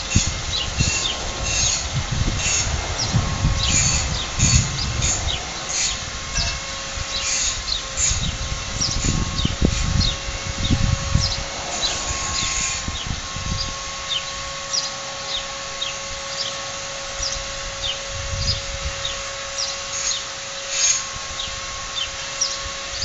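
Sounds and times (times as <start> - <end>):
low rumbles: 0.0 - 14.8
steady hum: 0.0 - 23.0
small birds chirping: 2.4 - 16.6, 17.2 - 23.0.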